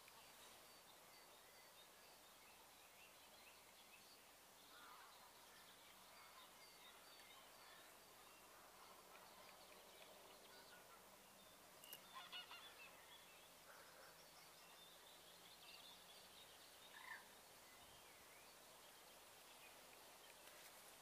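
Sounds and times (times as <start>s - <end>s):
faint bird calls: 4.7s - 15.1s, 16.9s - 17.4s.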